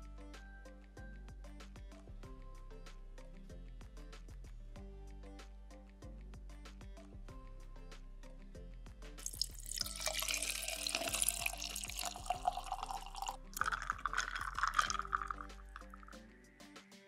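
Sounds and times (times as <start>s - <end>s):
light background music: 0.0s - 17.0s
tea pouring over ice: 9.2s - 16.2s.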